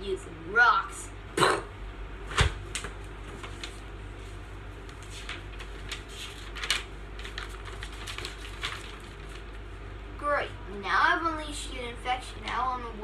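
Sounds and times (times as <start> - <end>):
paper pages rustling: 2.6 - 9.6.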